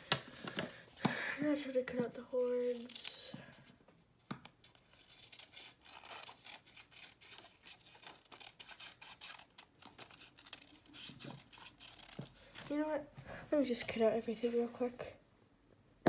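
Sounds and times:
scissors snipping paper: 0:04.4 - 0:12.6.

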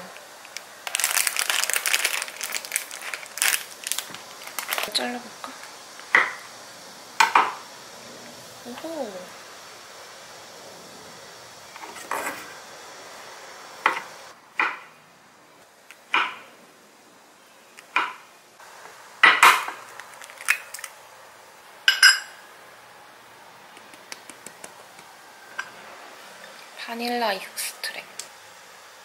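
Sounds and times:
ceramic bowl ringing: 0:21.9 - 0:22.3
dishes and utensils clinking: 0:21.9 - 0:22.4.

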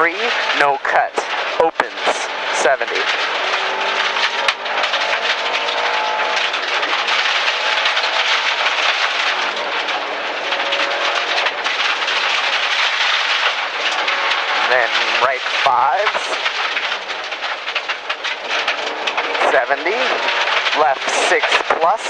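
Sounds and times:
car engine under load: 0:00.0 - 0:22.0
gravel hitting car underside: 0:00.0 - 0:22.0
tyre roar: 0:00.2 - 0:16.4.

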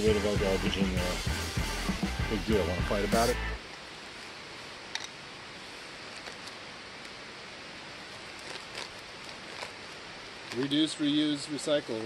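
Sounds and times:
low outdoor hiss: 0:00.0 - 0:12.0.

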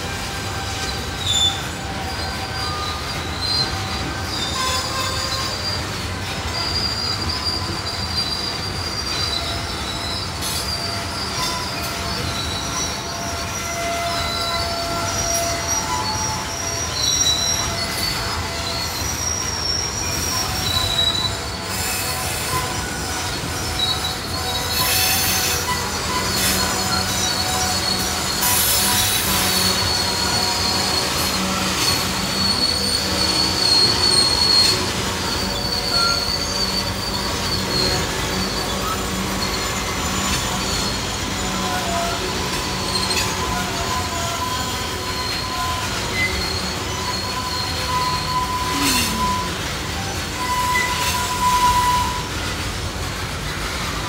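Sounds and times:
train rumble: 0:00.0 - 0:54.0
train wheels squealing: 0:00.0 - 0:54.0.

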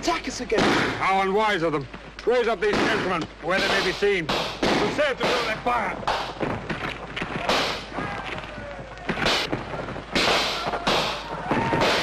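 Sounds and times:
musket gunshots: 0:00.5 - 0:01.3, 0:02.6 - 0:06.5, 0:07.3 - 0:08.0, 0:09.2 - 0:12.0
scuffling: 0:04.9 - 0:12.0.

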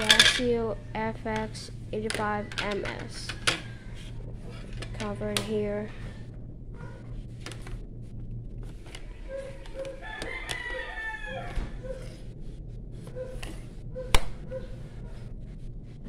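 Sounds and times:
steady low hum: 0:00.0 - 0:16.0
rooster crowing: 0:09.7 - 0:12.0.

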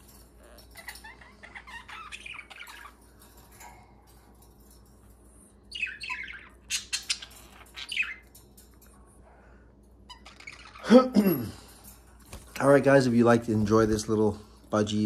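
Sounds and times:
budgerigars chirping: 0:00.8 - 0:03.0, 0:05.7 - 0:08.3.

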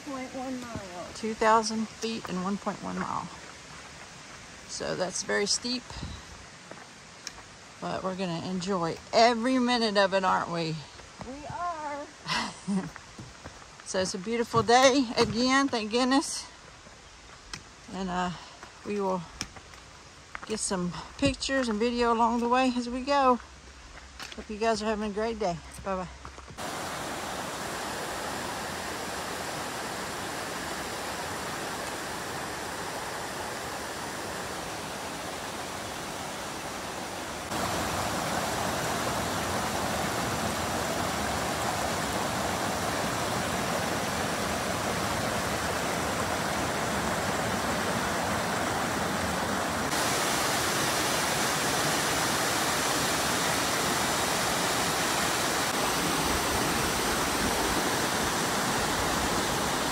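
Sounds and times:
water rushing over rock: 0:26.6 - 0:59.9.

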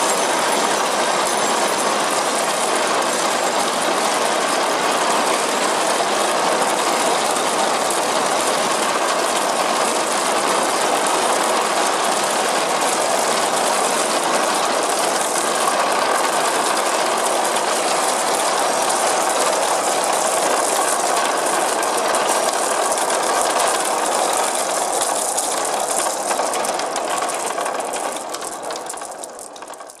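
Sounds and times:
marbles rolling and clattering on wood: 0:25.1 - 0:30.0.

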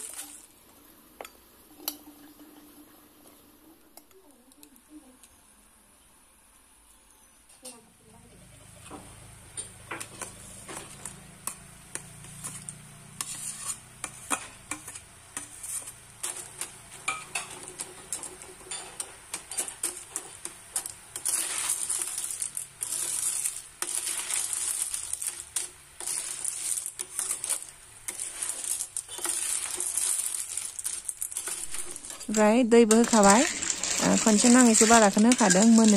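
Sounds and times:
food sizzling: 0:00.0 - 0:05.7, 0:08.7 - 0:35.9
metal spatula clinking and scraping: 0:10.0 - 0:35.9.

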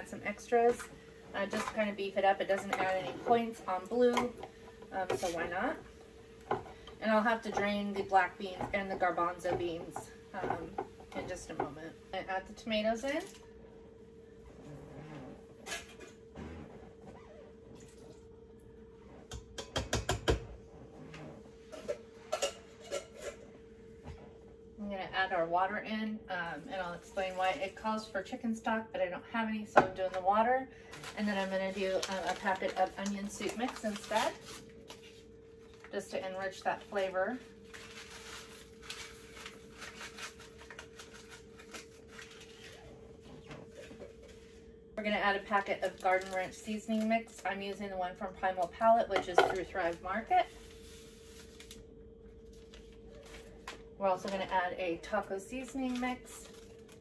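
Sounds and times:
faint steady hum: 0:00.0 - 0:57.0
paper packet rustling: 0:31.0 - 0:35.9, 0:37.6 - 0:42.9, 0:55.6 - 0:57.0.

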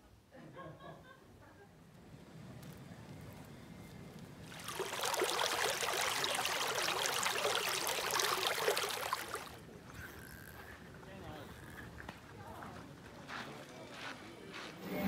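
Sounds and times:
stream splashing over stones: 0:04.5 - 0:09.7.

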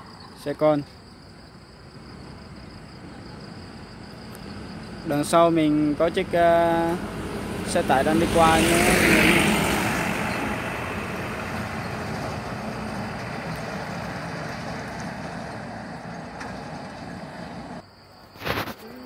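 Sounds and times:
truck driving past: 0:01.9 - 0:17.8.

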